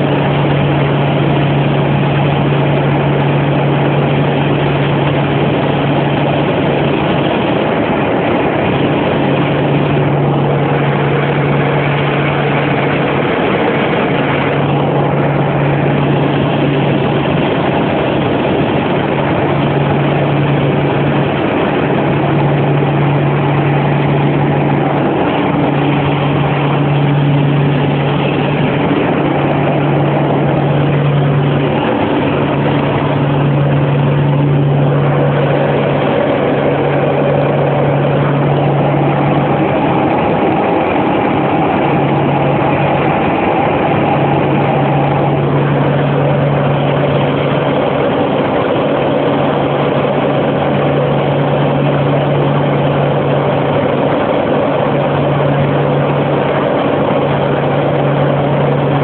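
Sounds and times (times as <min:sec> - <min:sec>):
small airplane engine drone: 0:00.0 - 0:59.0
wind noise: 0:00.0 - 0:59.0.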